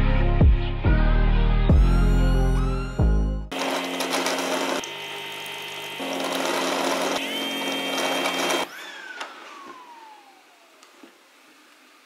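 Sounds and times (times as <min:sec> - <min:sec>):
robot mop motor whining: 0:06.0 - 0:10.8.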